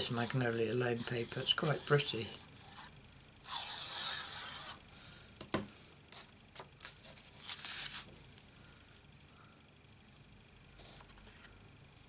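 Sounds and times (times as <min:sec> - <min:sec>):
paper rubbing and rustling: 0:06.1 - 0:08.1.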